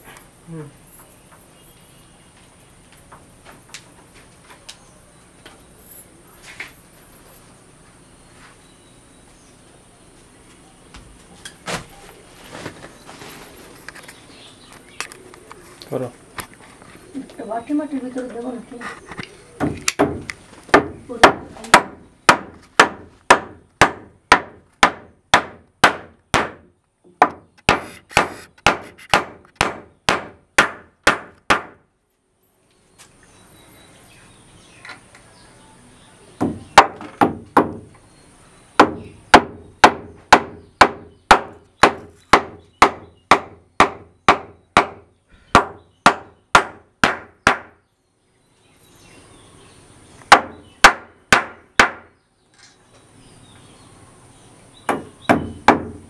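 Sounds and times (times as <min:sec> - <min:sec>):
hammer striking wooden door: 0:19.6 - 0:26.6, 0:36.4 - 0:37.9, 0:38.8 - 0:45.0, 0:54.9 - 0:56.0.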